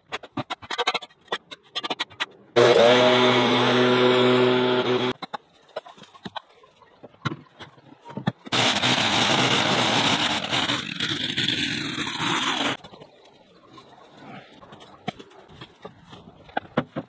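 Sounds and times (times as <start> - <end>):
string trimmer cutting grass: 2.6 - 5.2, 8.5 - 12.8.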